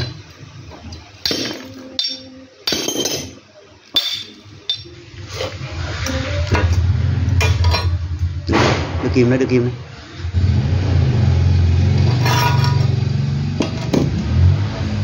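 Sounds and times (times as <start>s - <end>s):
low steady hum: 0.0s - 10.4s
hammer striking steel: 1.2s - 3.4s, 4.0s - 5.0s.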